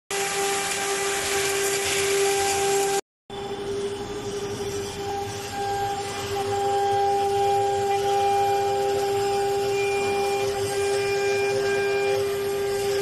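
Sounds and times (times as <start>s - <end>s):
cutter hissing on metal: 0.1s - 13.0s
spindle whining: 0.2s - 13.0s.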